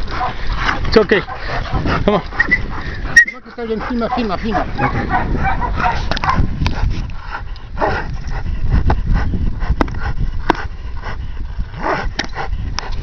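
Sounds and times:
dog growling while tugging: 3.8s - 13.0s.

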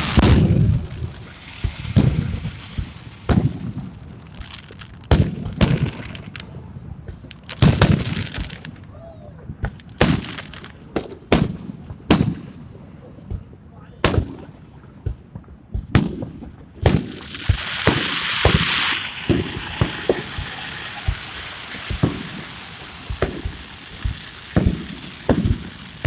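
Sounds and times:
firework shells bursting: 0.0s - 6.5s, 15.8s - 26.0s.

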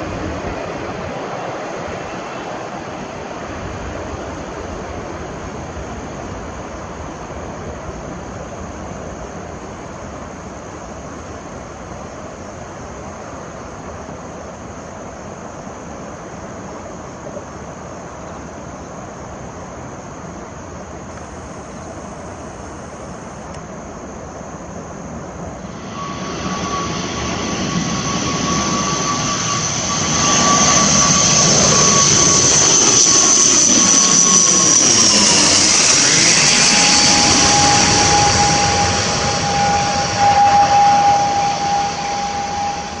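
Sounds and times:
jet taking off: 0.0s - 9.3s, 25.0s - 43.0s
turboprop plane whine: 0.0s - 17.2s, 17.8s - 43.0s.

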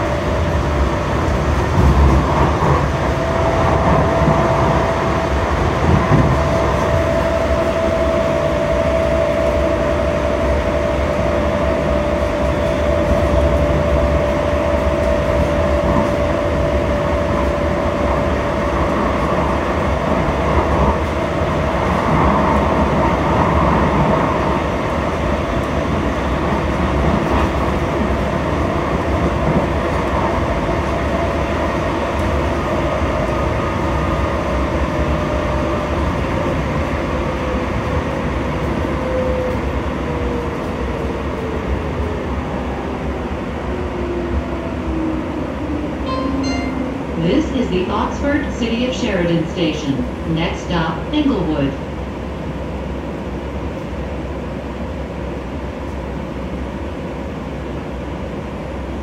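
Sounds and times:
wheels rumbling on track: 0.0s - 46.0s.

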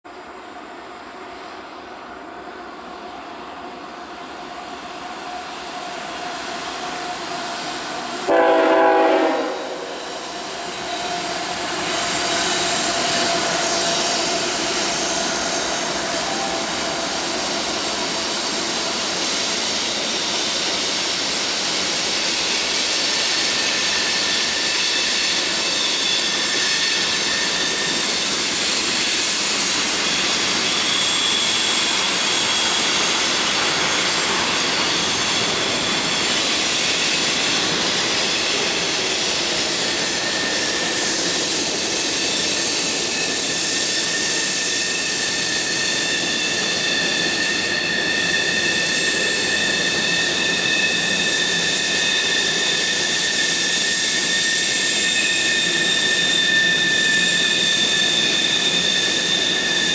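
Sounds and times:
freight train rumbling: 0.1s - 59.9s
train horn blast: 8.3s - 10.0s.

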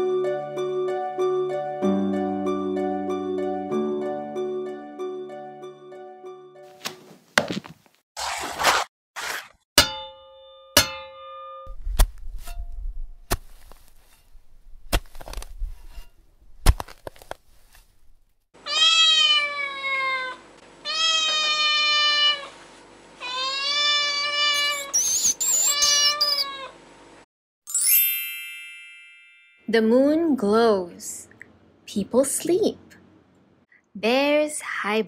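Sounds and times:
cat meowing: 18.6s - 22.5s, 23.2s - 26.8s.

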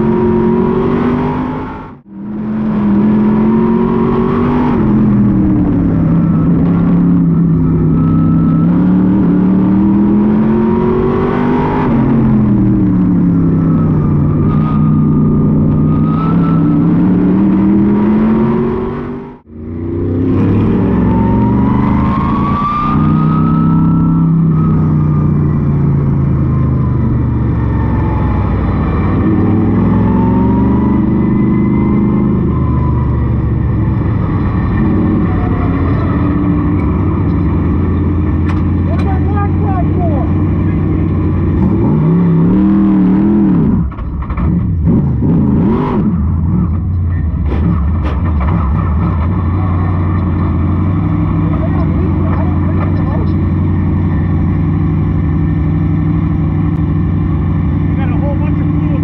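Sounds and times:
high whine: 0.0s - 44.4s
race car engine revving: 0.0s - 59.0s.

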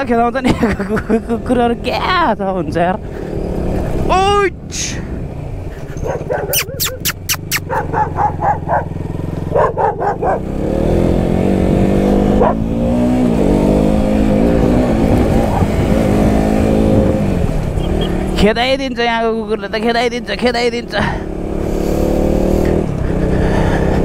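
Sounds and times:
motorcycle engine accelerating: 2.9s - 4.3s, 5.1s - 24.0s
dog barking: 6.0s - 8.9s, 9.5s - 10.5s, 12.4s - 12.6s.

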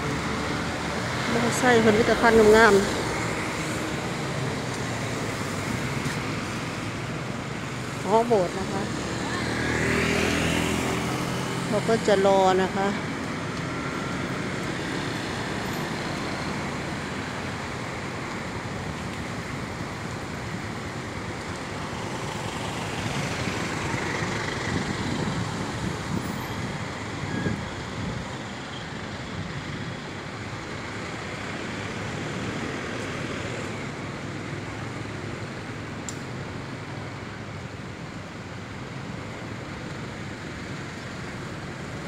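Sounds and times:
road noise: 0.0s - 42.0s
motorcycles passing: 7.6s - 14.8s.

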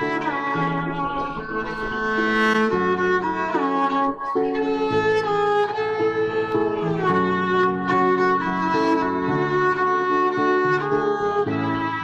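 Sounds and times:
bowed string instruments playing: 0.0s - 12.0s.

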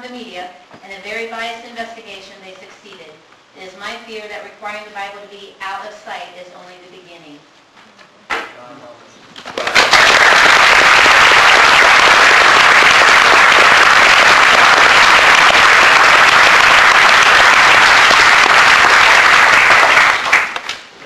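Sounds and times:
audience applauding: 9.5s - 20.8s.

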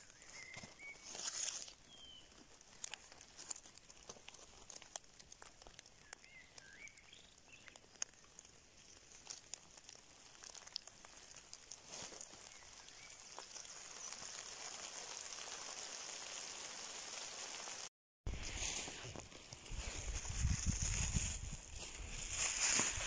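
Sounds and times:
faint bird chirps: 0.0s - 2.4s, 5.9s - 9.0s
pine needles and leaf litter rustling: 0.0s - 23.0s
faint crackles and ticks: 1.2s - 17.9s.

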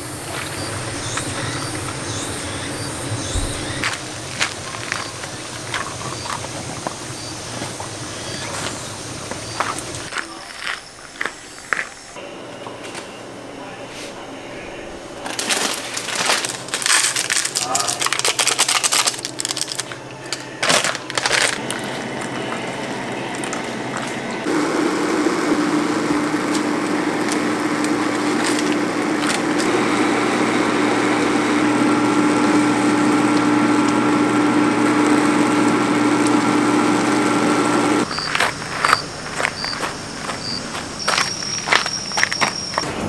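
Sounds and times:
machine humming: 0.0s - 43.0s
packets crinkling and tapping: 15.2s - 22.7s.

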